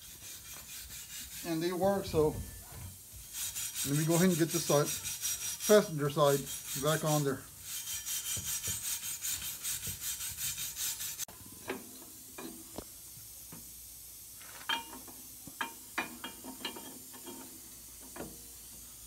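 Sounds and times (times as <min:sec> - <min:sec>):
wire brush scraping rust: 0:00.0 - 0:02.3, 0:03.2 - 0:11.8.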